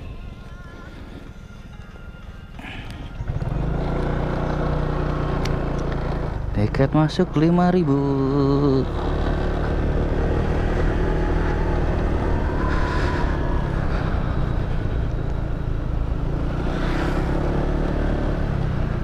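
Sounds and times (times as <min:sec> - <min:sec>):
motorcycle engine drone: 0:00.0 - 0:19.0
wind and road noise: 0:00.0 - 0:19.0.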